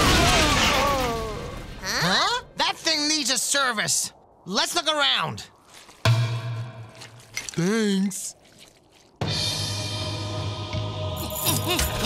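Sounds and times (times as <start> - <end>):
background music held notes: 9.2 - 12.0.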